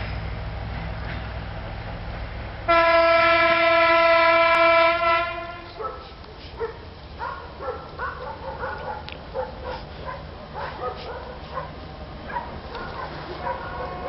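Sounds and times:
low rumble of trains: 0.0s - 14.0s
dog barking and yipping: 5.8s - 14.0s.

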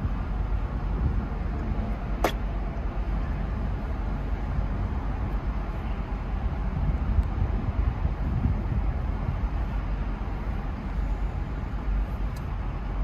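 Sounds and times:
road traffic: 0.0s - 13.0s
wind on microphone: 6.3s - 11.0s.

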